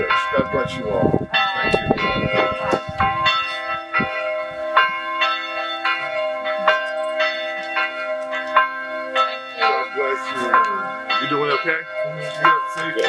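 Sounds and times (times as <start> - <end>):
church bells ringing: 0.0 - 13.0
low hum from bells: 0.0 - 13.0.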